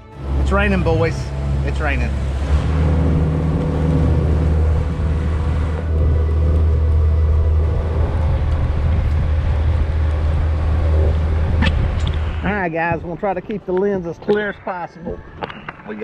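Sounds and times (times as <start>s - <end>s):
boat motor running: 0.0s - 14.4s
wind: 0.0s - 16.0s
rain: 0.2s - 12.5s.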